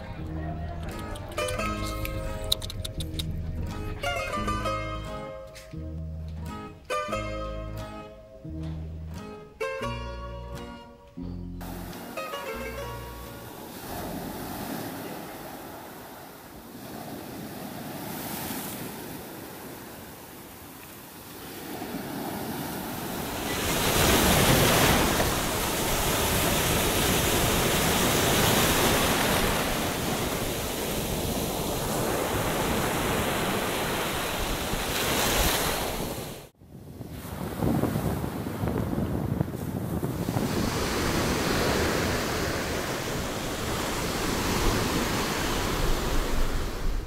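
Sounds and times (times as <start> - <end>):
waves breaking on shore: 11.6 - 47.0.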